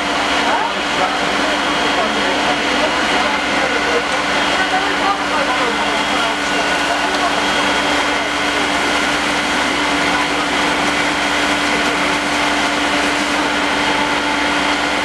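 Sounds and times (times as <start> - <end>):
loud rushing hiss: 0.0 - 15.0
machinery humming and whining: 0.0 - 15.0.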